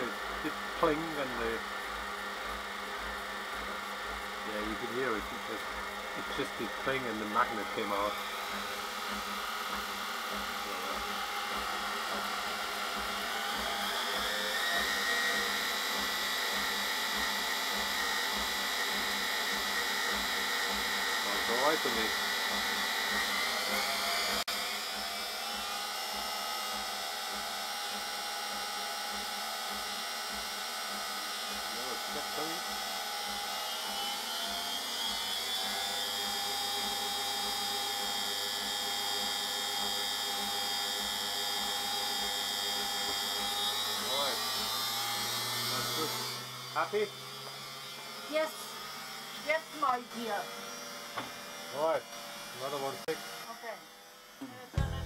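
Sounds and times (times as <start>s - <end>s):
washing machine motor whine: 0.0s - 55.0s
faint low pulse: 54.7s - 55.0s.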